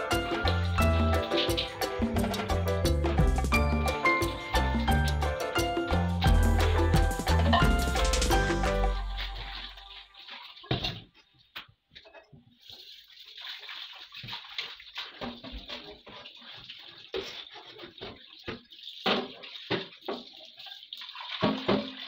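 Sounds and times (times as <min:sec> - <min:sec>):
metal pots clanking against sink: 0:00.0 - 0:11.3, 0:15.0 - 0:20.6, 0:21.3 - 0:22.0.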